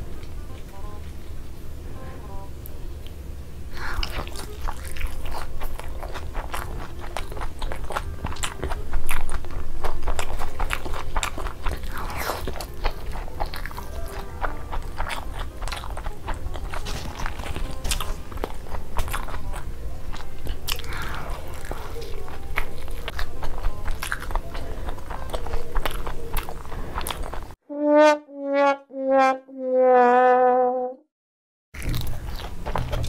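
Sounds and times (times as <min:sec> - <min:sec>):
wet chewing and lip-smacking: 0:03.8 - 0:27.6, 0:31.8 - 0:33.0.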